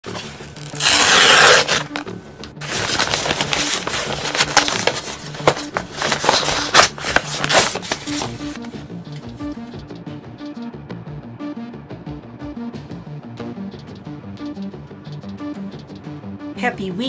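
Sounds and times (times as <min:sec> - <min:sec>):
paper ripping: 0:00.0 - 0:08.7
paper crinkling and rustling: 0:00.0 - 0:08.8.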